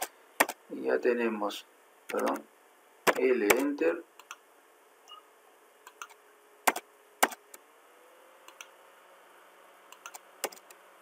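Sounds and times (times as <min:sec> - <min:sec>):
mouse and keyboard clicks: 0:05.9 - 0:07.4, 0:09.9 - 0:10.8.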